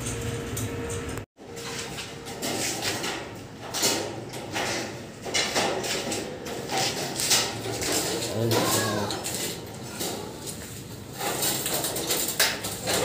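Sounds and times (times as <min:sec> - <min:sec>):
rustling and scraping: 0:00.0 - 0:13.0.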